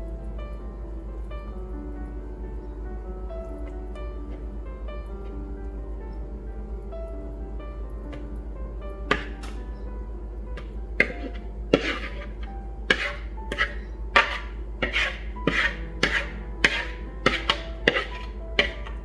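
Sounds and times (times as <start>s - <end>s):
soft background music: 0.0s - 19.0s
spatula scraping batter: 10.6s - 19.0s.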